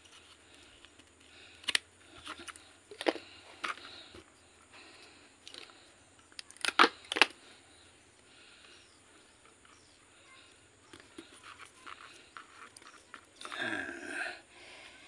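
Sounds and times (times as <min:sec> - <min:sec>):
faint rustling of roots: 0:00.0 - 0:15.0
crisp clicks: 0:05.4 - 0:07.4.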